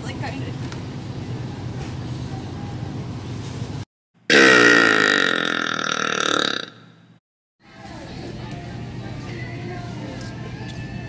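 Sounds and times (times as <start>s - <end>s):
woman burping: 4.3s - 6.9s.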